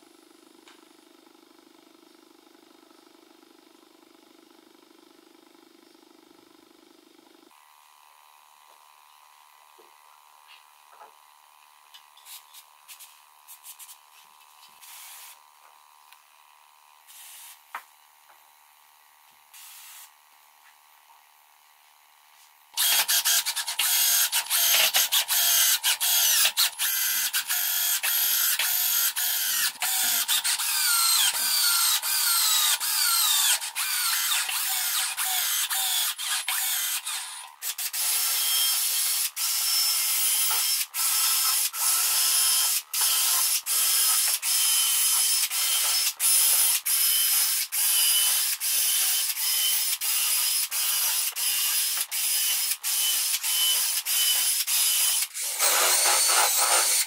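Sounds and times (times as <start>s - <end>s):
aerosol spray hisses: 17.1s - 17.6s, 19.6s - 20.1s
cordless drill whining: 22.8s - 57.0s.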